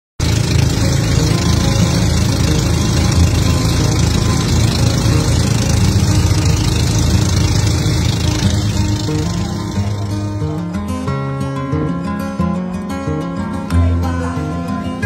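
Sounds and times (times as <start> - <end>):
boat engine droning: 0.2 - 15.0.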